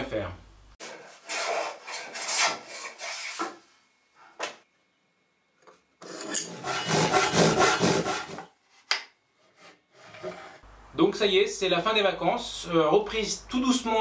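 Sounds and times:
tools rasping on wood: 0.8 - 3.5, 6.4 - 8.5, 9.4 - 10.6.

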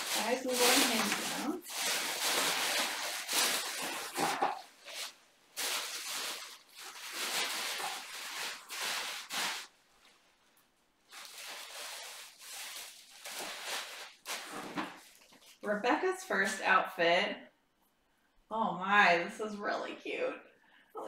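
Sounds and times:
wrapping rustling and crinkling: 0.0 - 16.7.

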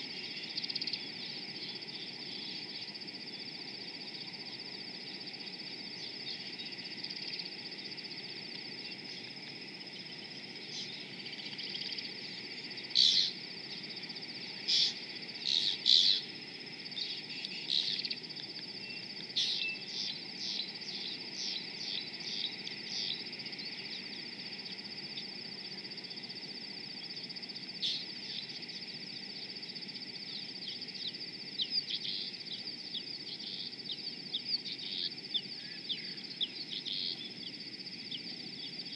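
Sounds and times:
high-pitched insect drone: 0.0 - 38.9
starlings calling: 14.5 - 16.3, 18.9 - 23.2.

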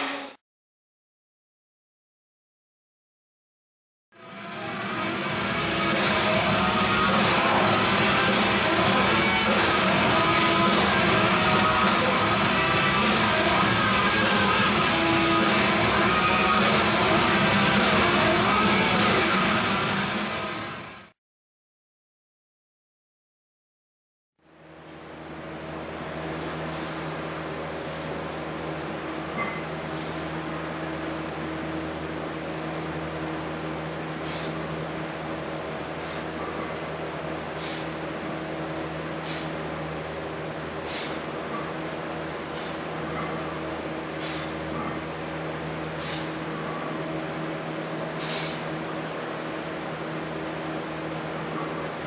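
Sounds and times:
ventilation hum: 4.2 - 21.1, 24.4 - 52.0
short hisses: 26.5 - 27.1, 29.8 - 30.3, 34.2 - 34.6, 36.0 - 36.4, 37.5 - 38.0, 39.2 - 39.6, 40.8 - 41.3, 42.5 - 42.8, 44.1 - 44.6, 46.0 - 46.4, 48.1 - 48.8
short hissing bursts: 37.6 - 38.0, 40.8 - 41.2, 44.1 - 44.6, 46.0 - 46.4, 48.1 - 48.7.

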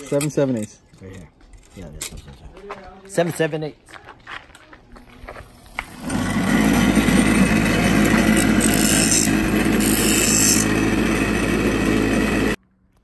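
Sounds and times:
bench grinder motor hum: 5.8 - 12.6
harsh grinding hiss: 7.2 - 12.6.

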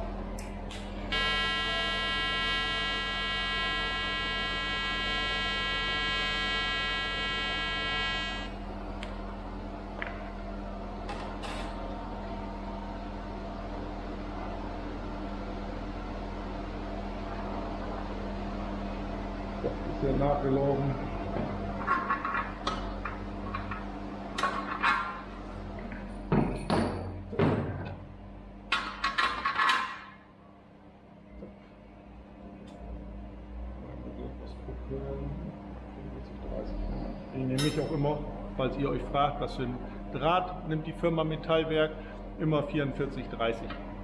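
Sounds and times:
steady low hum: 0.0 - 44.0
welding arc buzzing: 0.3 - 9.1.

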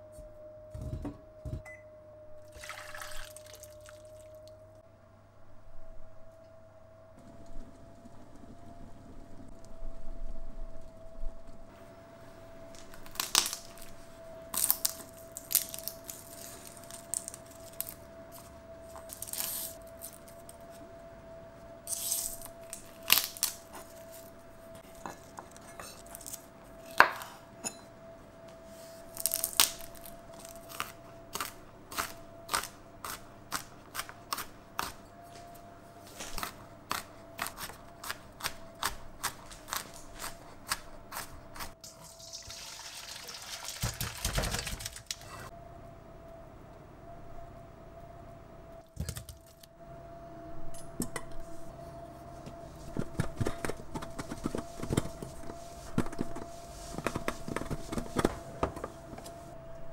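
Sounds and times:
faint hum: 0.0 - 42.4, 44.3 - 59.9
garlic peeling crackles: 12.7 - 20.5, 21.9 - 25.3, 29.0 - 35.0
tap water running into colander: 41.9 - 45.1.

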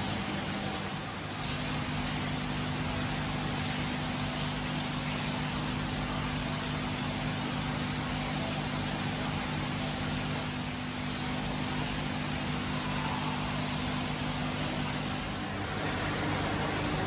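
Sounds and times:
mechanical hum: 0.0 - 17.0
even hiss: 11.5 - 17.0.

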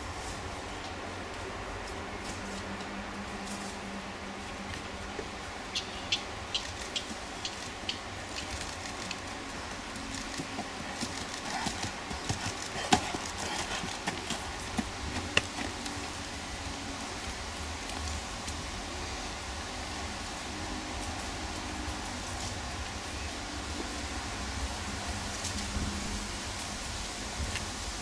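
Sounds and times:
horse hooves on gravel: 6.2 - 16.5.

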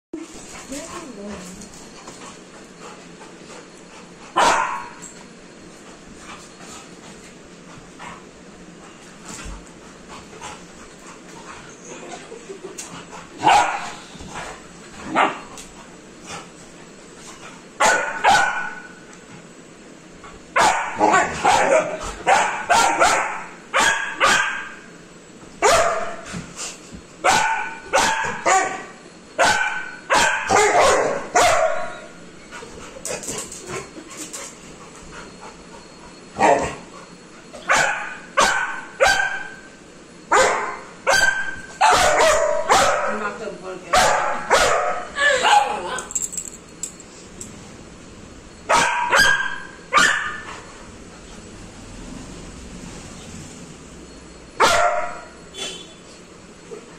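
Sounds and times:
puppy barking high-pitched yaps: 4.4 - 5.0, 17.8 - 18.9, 20.6 - 24.8, 25.6 - 26.2, 27.2 - 28.8, 29.4 - 32.0, 37.7 - 39.6, 40.3 - 43.2, 44.0 - 45.8, 48.7 - 50.5, 54.6 - 55.3.

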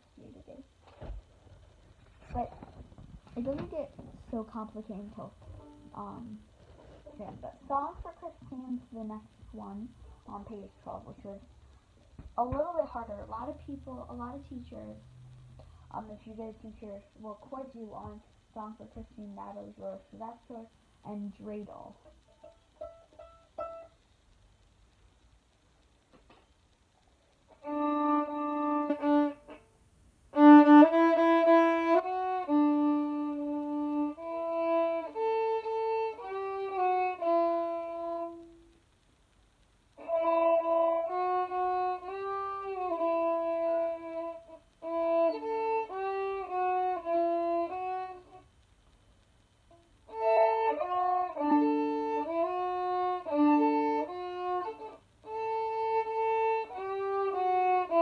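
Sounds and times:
violin played slowly: 27.5 - 29.7, 30.3 - 38.8, 40.0 - 48.4, 49.7 - 58.0.

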